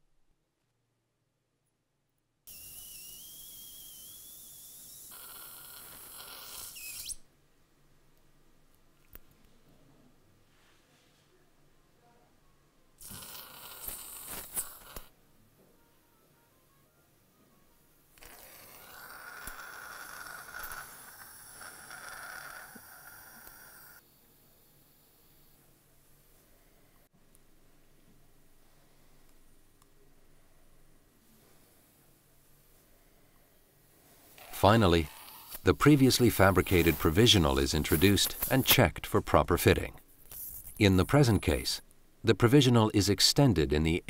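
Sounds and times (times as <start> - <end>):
suction aspirator hissing and whistling: 2.5 - 7.2, 13.0 - 15.1, 18.2 - 24.0, 34.4 - 38.6
whistling hiss: 2.5 - 7.2.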